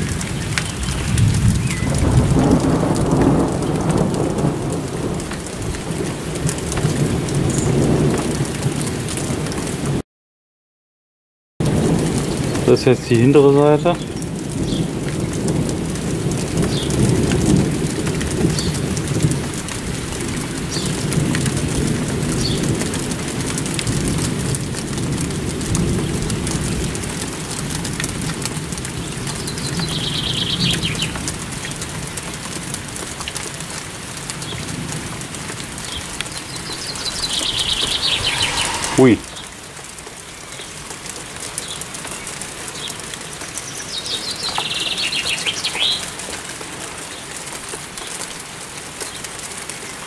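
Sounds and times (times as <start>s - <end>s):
steady rain falling: 0.0s - 10.0s, 11.6s - 50.0s
bird chirping: 35.9s - 39.6s, 43.8s - 46.0s
low rumble: 36.7s - 39.7s.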